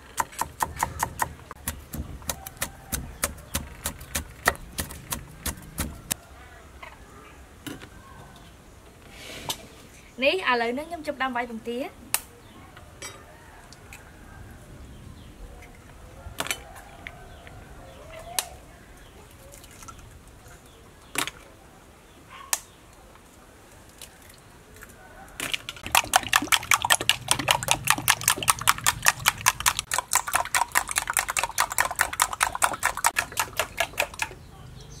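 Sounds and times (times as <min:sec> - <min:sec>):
eggs beaten in a bowl: 0:00.0 - 0:06.2, 0:25.8 - 0:34.4.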